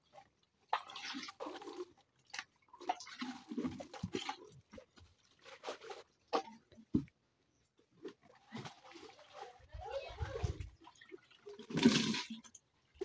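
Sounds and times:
water sloshing and splashing: 0.0s - 13.0s.

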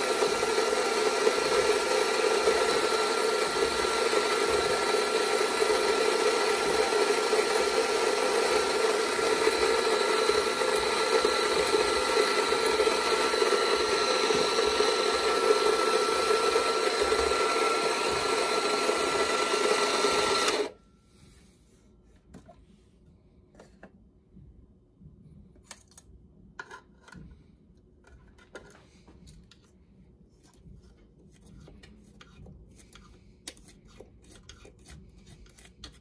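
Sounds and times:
coffee grinder whining: 0.0s - 20.8s.

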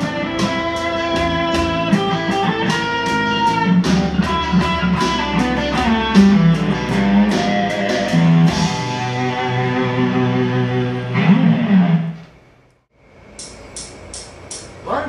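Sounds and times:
electric guitar playing: 0.0s - 12.4s.

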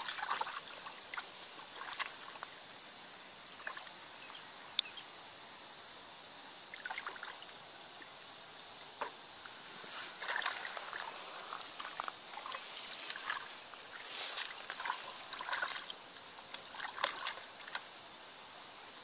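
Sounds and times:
splashing in muddy water: 0.0s - 2.5s, 3.6s - 4.0s, 6.7s - 7.5s, 10.1s - 17.9s
rustling of dry grass: 9.4s - 18.0s.

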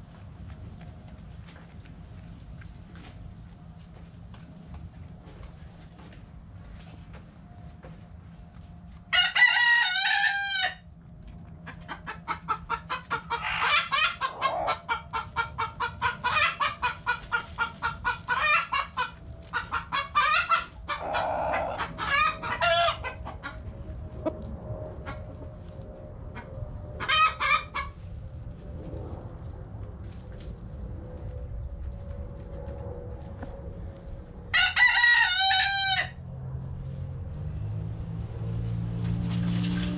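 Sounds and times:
hen clucking and cackling: 9.1s - 10.8s, 11.6s - 25.4s, 26.3s - 28.0s, 34.5s - 36.2s
rooster crowing: 9.1s - 10.8s, 20.2s - 23.1s, 34.5s - 36.2s.

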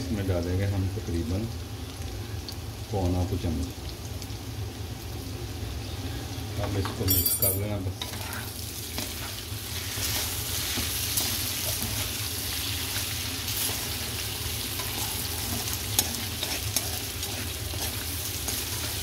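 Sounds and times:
potato slices sizzling: 0.0s - 19.0s
spoon clinking on metal: 7.1s - 7.7s
metal spoon scraping pan: 8.0s - 9.4s, 14.7s - 19.0s.

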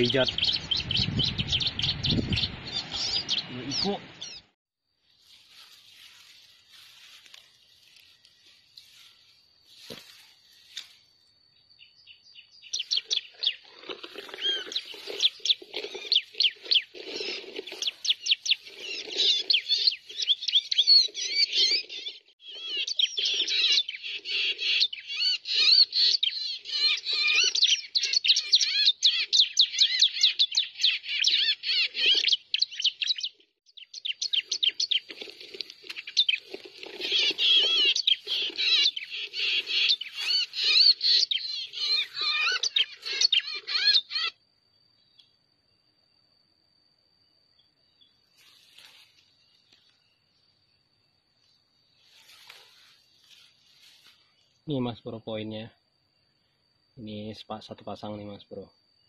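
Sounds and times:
bird chirping calls from phone: 37.0s - 44.4s.

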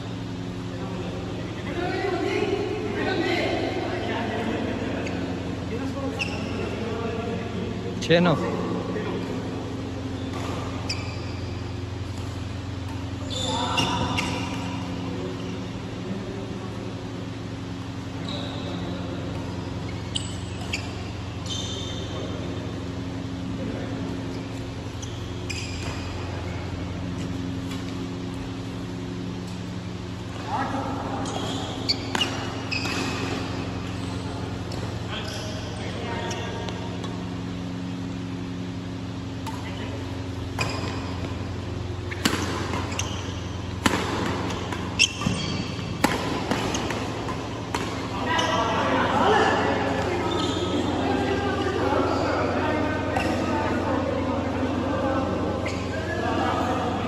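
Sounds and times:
steady low hum: 0.0s - 57.0s
short squeak: 6.1s - 6.6s, 10.2s - 11.5s, 18.2s - 18.9s, 19.9s - 22.1s, 25.0s - 26.1s, 31.2s - 34.2s, 42.1s - 43.4s, 45.0s - 45.8s, 50.2s - 50.9s
rackets hitting shuttlecock: 31.2s - 35.1s, 36.6s - 50.5s.

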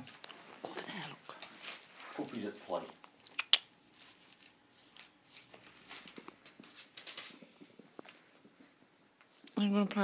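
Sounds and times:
puppies rustling newspapers: 0.0s - 3.0s, 3.8s - 8.8s.

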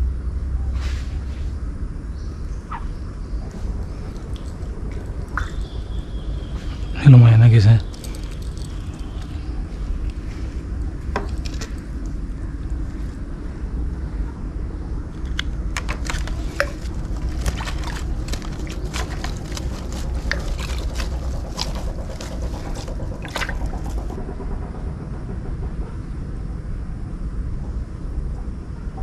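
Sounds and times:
low wind rumble on microphone: 0.0s - 29.0s
rustling and clicking of mesh net: 15.2s - 24.2s.

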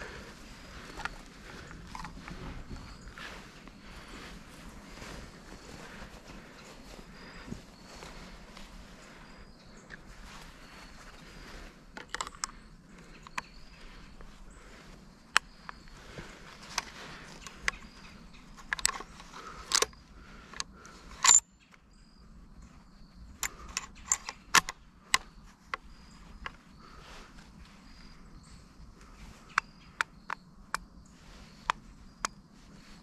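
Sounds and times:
rifle metallic clicks and rattles: 0.8s - 2.3s, 11.9s - 13.7s, 18.5s - 21.8s, 23.3s - 25.8s.

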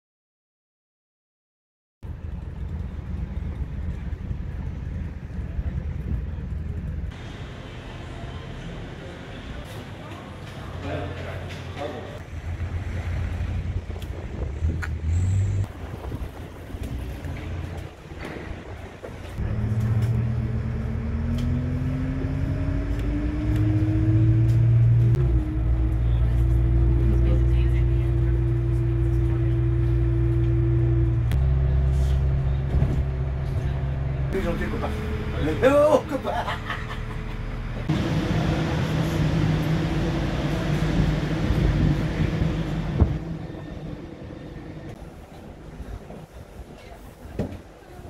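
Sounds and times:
outdoor low rumble: 2.0s - 9.6s, 11.4s - 47.8s
bus engine drone: 2.0s - 48.0s
drivetrain whine rising: 19.3s - 35.6s.

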